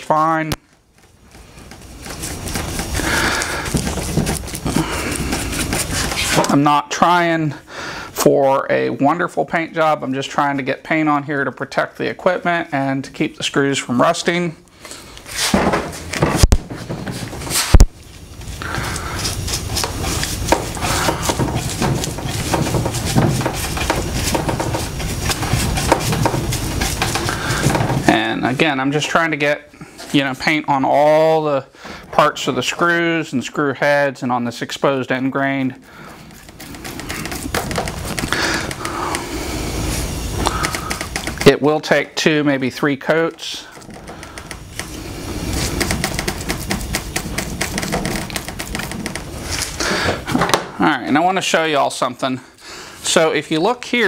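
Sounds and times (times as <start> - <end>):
scratchy paintbrush strokes: 0.8 - 6.6, 16.7 - 31.3, 35.9 - 42.0, 42.8 - 50.0.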